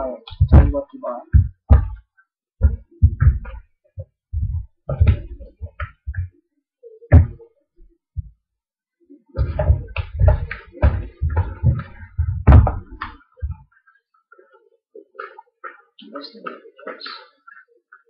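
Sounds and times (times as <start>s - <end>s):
dull thuds and knocks: 0.3s - 2.0s, 2.6s - 3.7s, 4.3s - 6.3s, 7.1s - 7.4s, 9.4s - 13.6s.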